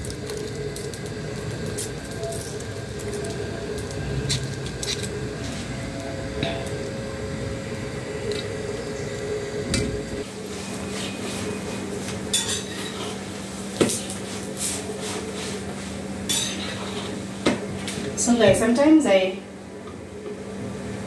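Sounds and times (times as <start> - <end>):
metal spoon scraping a pan: 12.4 - 13.3, 16.3 - 17.2.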